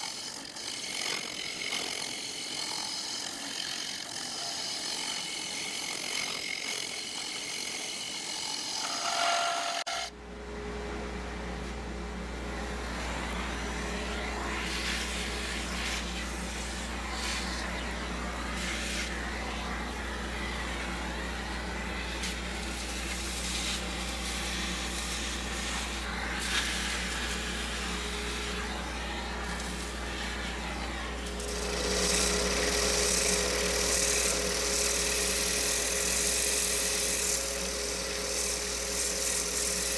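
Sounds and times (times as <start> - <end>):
sanding disc whirring: 0.0 - 10.1, 11.6 - 39.9
sandpaper rubbing spinning wood: 0.0 - 10.1, 12.5 - 39.9
lathe humming: 0.0 - 39.9
gouge hissing on wood: 13.2 - 39.9.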